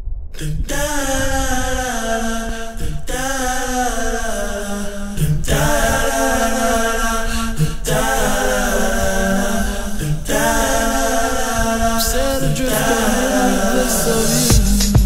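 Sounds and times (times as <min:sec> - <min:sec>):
unaccompanied voices chanting: 0:00.4 - 0:15.0.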